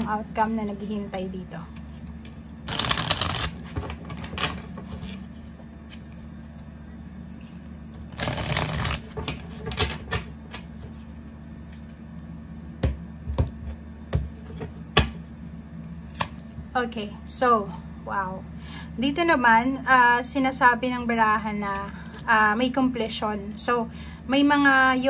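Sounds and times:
cards flicking: 2.7 - 3.6, 8.2 - 9.1
cards riffle shuffled: 2.7 - 3.8, 8.1 - 9.2.

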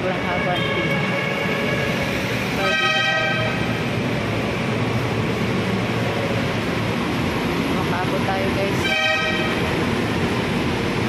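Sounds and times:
train rumbling: 0.0 - 11.0
train horn: 2.6 - 3.6, 8.8 - 9.6.

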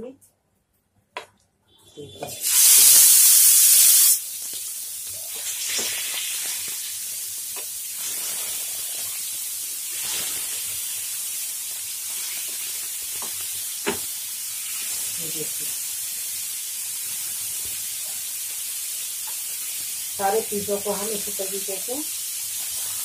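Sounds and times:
meat sizzling in hot oil: 2.3 - 23.0
loud oil hiss: 2.4 - 4.4.

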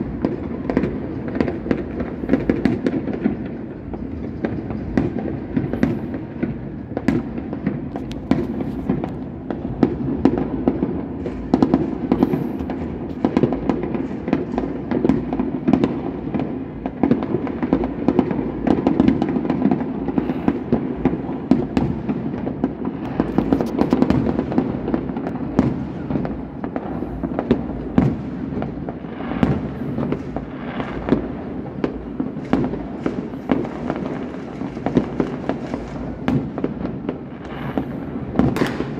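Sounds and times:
fireworks crackling: 0.0 - 38.9.

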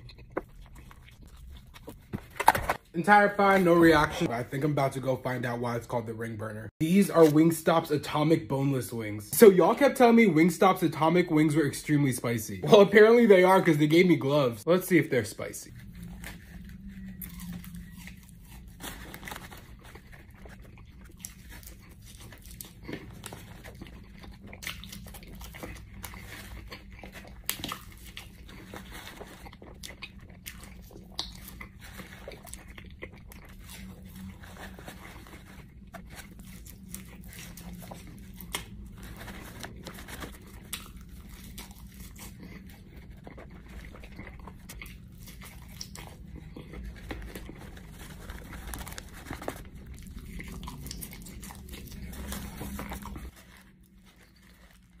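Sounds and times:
man chewing: 0.0 - 2.8, 15.7 - 55.0.

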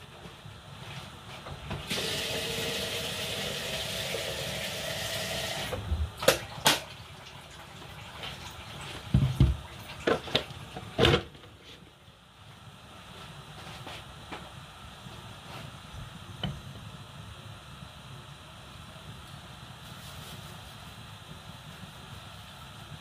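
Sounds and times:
water running from a tap: 1.9 - 9.0
kitchen things knocking and thudding: 9.1 - 11.4.

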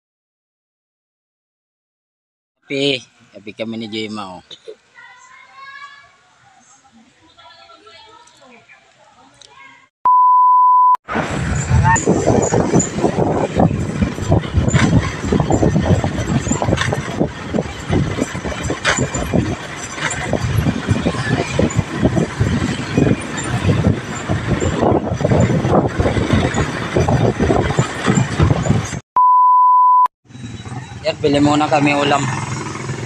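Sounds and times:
high test-tone beep: 10.1 - 11.0, 29.2 - 30.1
wind buffeting microphone: 11.1 - 29.0
motorcycle engine running: 11.3 - 29.0, 30.3 - 33.0.

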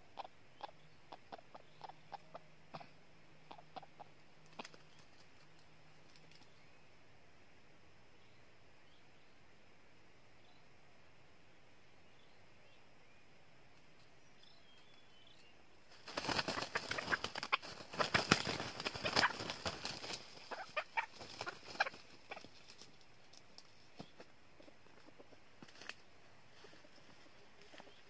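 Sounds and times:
roosters wing-beats and scuffling: 3.5 - 6.6, 15.9 - 28.0.

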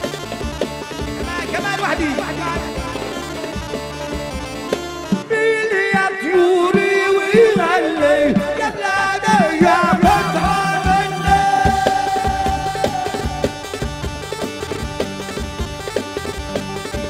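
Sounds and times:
reedy lead melody: 0.0 - 6.9, 7.6 - 17.0
steady drum beat: 7.3 - 17.0.

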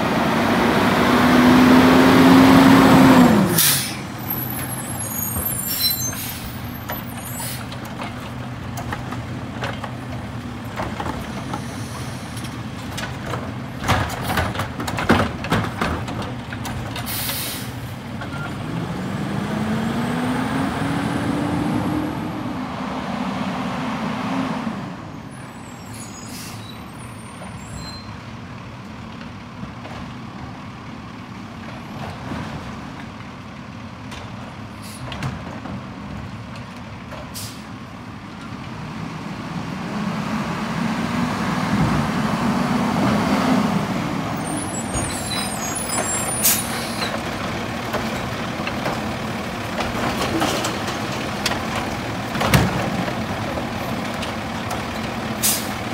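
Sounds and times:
garbage truck engine: 0.0 - 55.9
air brake hiss: 3.5 - 4.1, 17.1 - 17.8, 25.9 - 26.8, 34.8 - 35.1, 37.4 - 37.7, 55.4 - 55.8.

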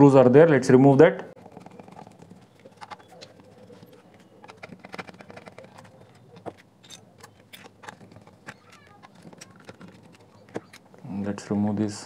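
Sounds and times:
screwdriver clicking on screws: 1.5 - 11.0.

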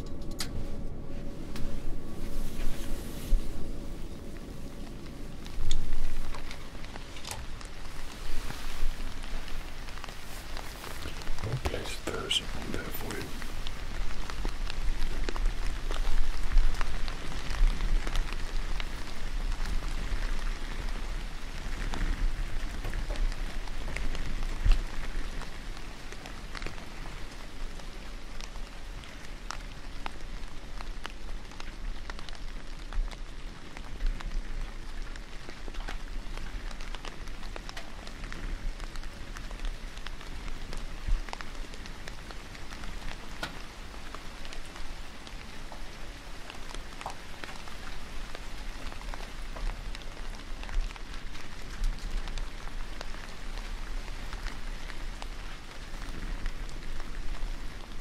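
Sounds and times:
low rumble: 0.0 - 27.4
rain-like patter: 0.0 - 58.0
small crackles: 0.0 - 58.0.

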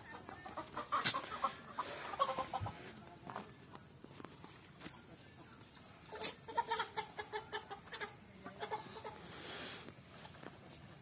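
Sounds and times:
chicken clucking: 0.0 - 3.6, 4.4 - 9.4.

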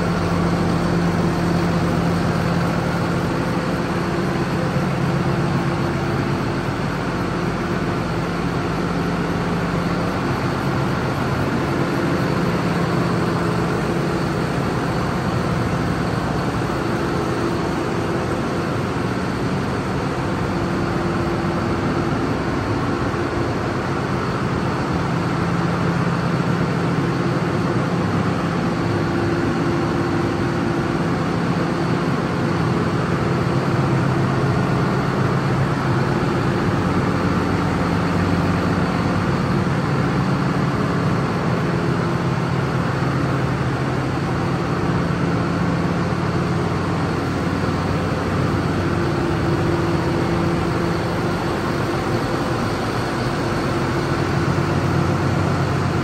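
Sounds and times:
diesel engine idling: 0.0 - 56.0.

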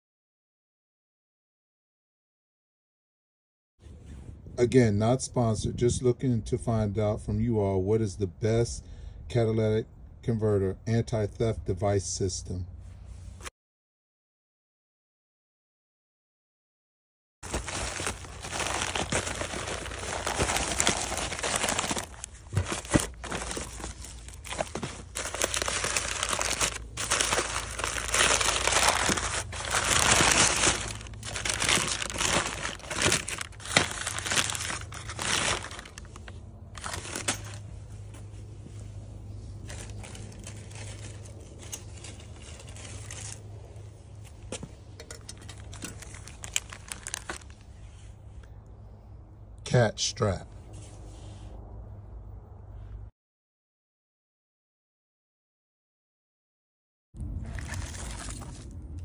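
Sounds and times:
plastic bag and paper crinkling: 17.4 - 47.8, 57.3 - 59.0
low steady hum: 17.5 - 53.1.

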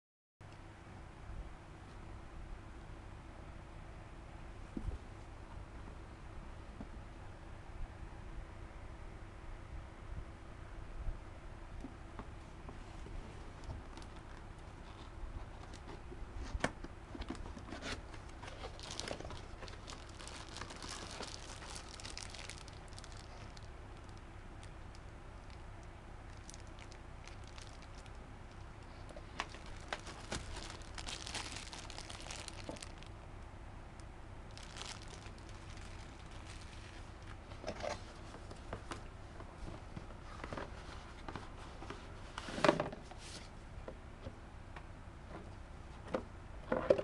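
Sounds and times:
faint low hum: 0.4 - 47.0
plastic bags crinkling: 18.2 - 25.6, 26.3 - 33.2, 34.5 - 37.4
cardboard box rustling: 29.4 - 33.0.

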